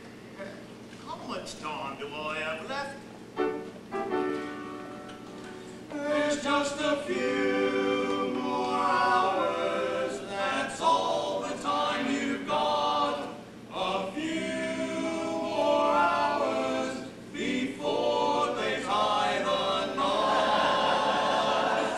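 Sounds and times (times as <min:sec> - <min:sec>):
cast singing in chorus: 0:05.9 - 0:21.9.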